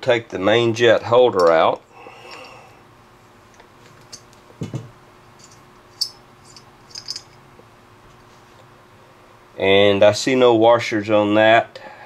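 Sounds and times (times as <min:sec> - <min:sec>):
small metal parts clicking: 0:05.4 - 0:07.4.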